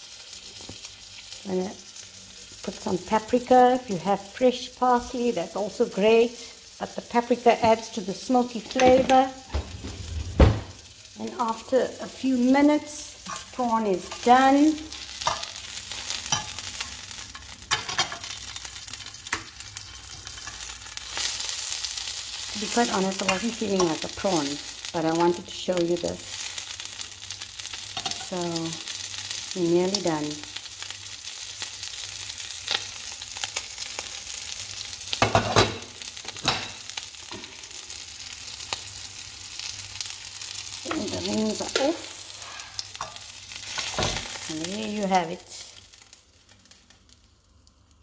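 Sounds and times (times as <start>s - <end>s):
prawn sizzling in frying pan: 0.0s - 48.0s
metal fork scraping a pan: 13.2s - 14.3s, 15.2s - 18.4s, 19.3s - 21.5s, 41.7s - 44.2s
utensil scraping pan: 13.2s - 14.4s, 40.9s - 44.4s.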